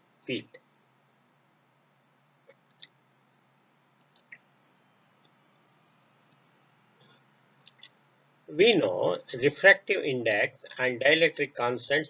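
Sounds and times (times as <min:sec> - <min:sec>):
low steady hum: 0:00.0 - 0:12.0
faint computer mouse clicks: 0:04.0 - 0:04.4.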